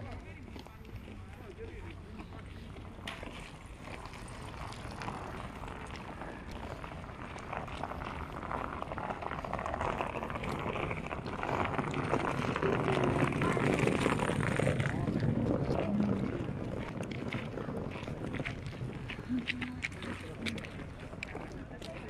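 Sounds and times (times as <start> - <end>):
street noise: 0.0 - 22.0.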